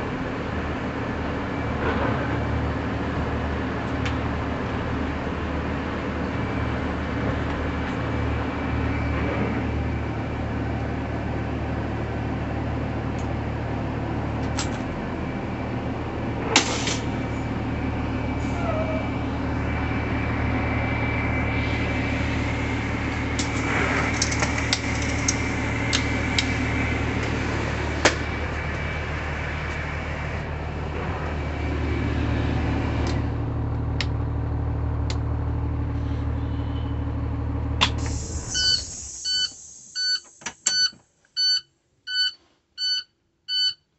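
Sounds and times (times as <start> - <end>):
bus engine idling: 0.0 - 40.6.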